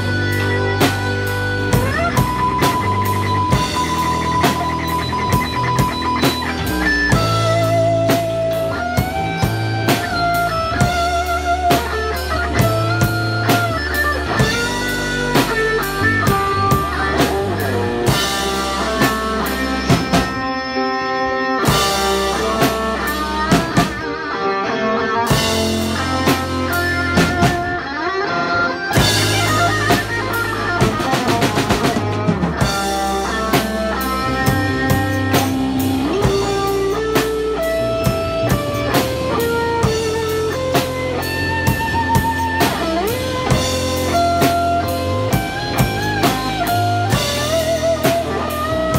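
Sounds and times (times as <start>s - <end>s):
drum kit: 0.0s - 48.9s
electric guitar melody: 0.0s - 48.9s.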